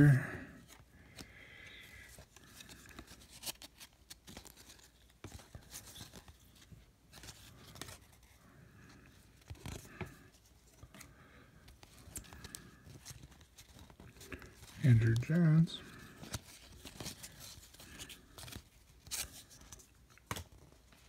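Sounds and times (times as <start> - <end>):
cards sliding against cards: 2.1 - 8.3, 16.2 - 21.0.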